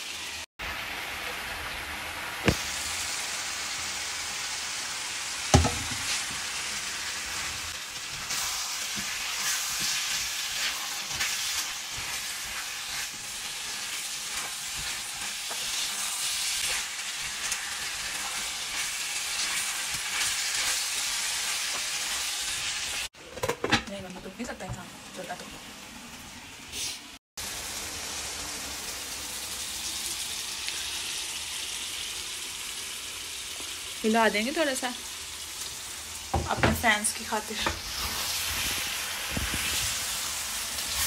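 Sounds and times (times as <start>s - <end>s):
vegetables sizzling in a frying pan: 0.0s - 23.1s, 24.0s - 41.0s
sharp knock: 5.5s - 6.0s.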